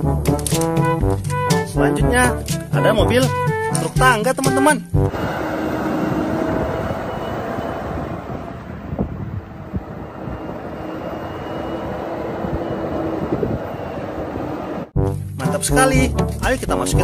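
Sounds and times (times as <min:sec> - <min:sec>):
diesel engine droning: 0:05.1 - 0:15.4.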